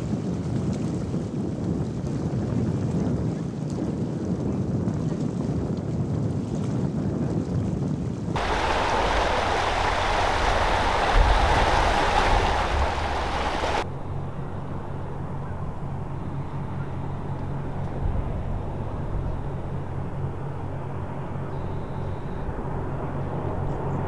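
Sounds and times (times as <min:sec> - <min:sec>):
wind: 0:00.0 - 0:24.0
boat engine droning: 0:08.4 - 0:24.0
water noise: 0:08.4 - 0:24.0.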